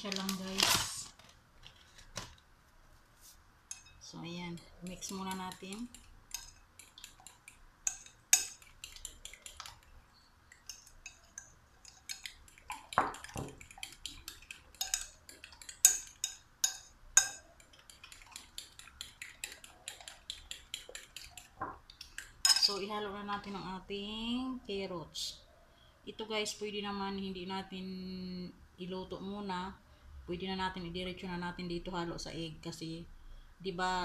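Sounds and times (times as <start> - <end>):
metal spoon clinking glass bowl: 3.7 - 4.0, 4.8 - 9.8, 10.6 - 21.5, 22.4 - 22.9.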